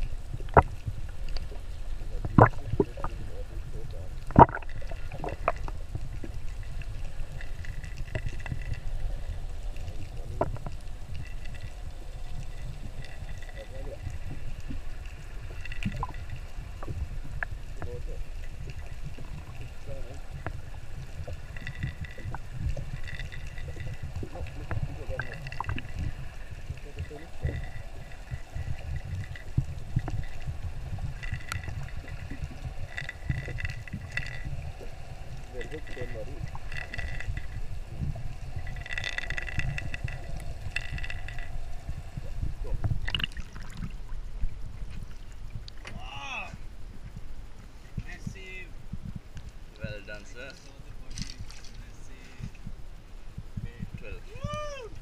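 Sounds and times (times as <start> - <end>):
low rumble: 0.0 - 55.0
muffled underwater noise: 0.0 - 55.0
high ticking: 4.2 - 44.0.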